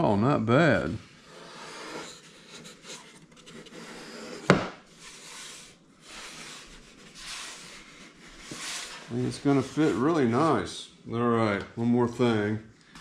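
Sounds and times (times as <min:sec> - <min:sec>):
hands rubbing on wood: 0:01.2 - 0:10.5.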